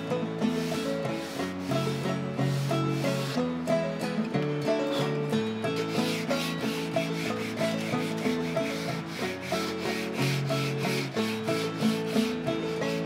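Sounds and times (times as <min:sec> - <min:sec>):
background music: 0:00.0 - 0:13.0
sandpaper scratching on wood: 0:00.6 - 0:03.4, 0:05.7 - 0:13.0.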